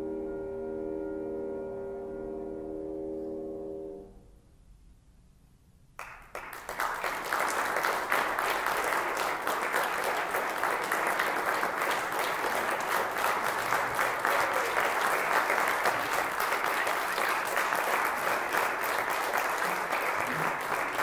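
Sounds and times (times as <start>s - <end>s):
audience applause: 6.0s - 21.0s.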